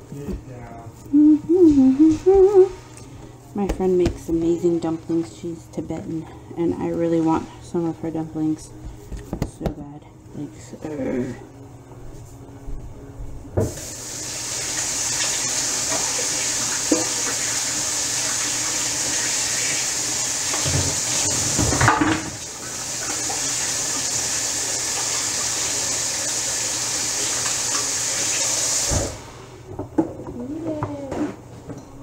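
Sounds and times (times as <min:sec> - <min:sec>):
sink tap running: 0:13.6 - 0:29.2.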